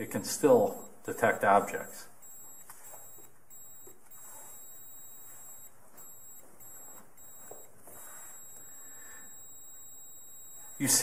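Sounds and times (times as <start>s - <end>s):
high-pitched electronic whine: 2.2s - 11.0s.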